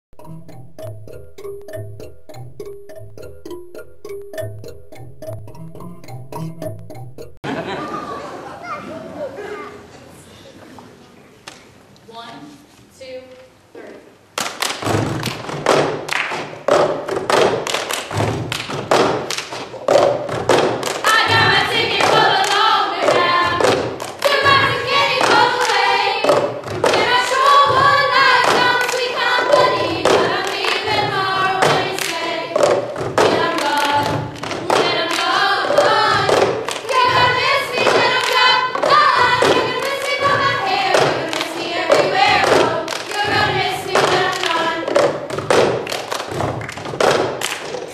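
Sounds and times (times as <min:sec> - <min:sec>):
hand claps: 0:14.4 - 0:21.2, 0:43.9 - 0:47.9
girls singing in unison: 0:21.0 - 0:45.2.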